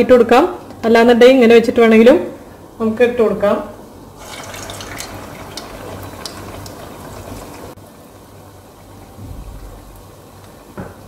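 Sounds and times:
fritters sizzling in hot oil: 4.2 - 7.8.

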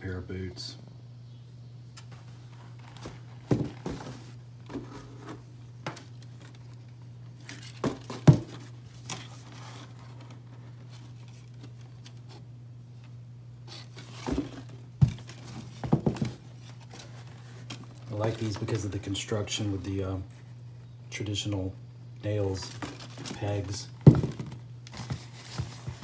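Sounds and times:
boots knocking against box: 3.0 - 4.8, 7.8 - 8.6, 14.2 - 16.4, 24.0 - 26.0.

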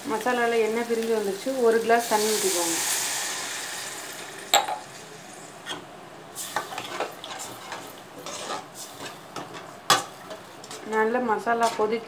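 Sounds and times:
water sizzling in hot oil: 0.0 - 5.5
metal spoon clinking and scraping pan: 6.6 - 10.8.

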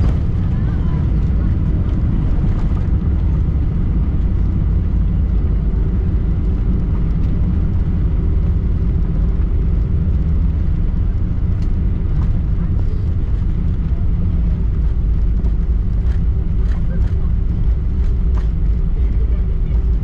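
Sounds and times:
airplane cabin engine rumble: 0.0 - 20.0.

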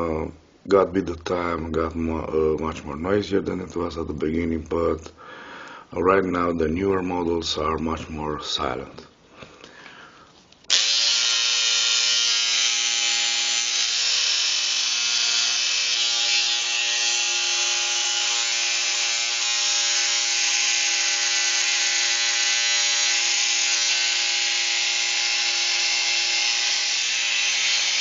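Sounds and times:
electric hair clipper humming: 10.7 - 28.0.

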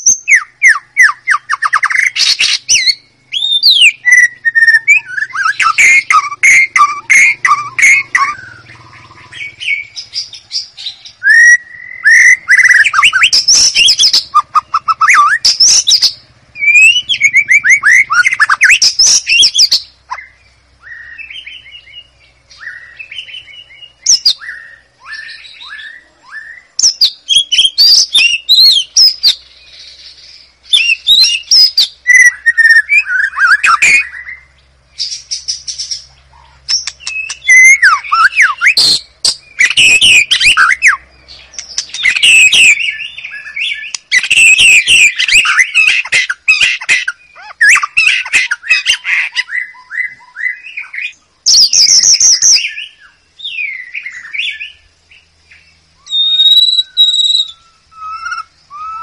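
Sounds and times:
songbird singing whistles: 0.0 - 59.0.

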